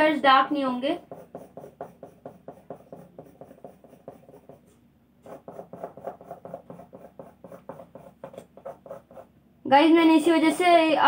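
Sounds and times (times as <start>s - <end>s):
pencil scratching on paper: 0.7s - 9.3s.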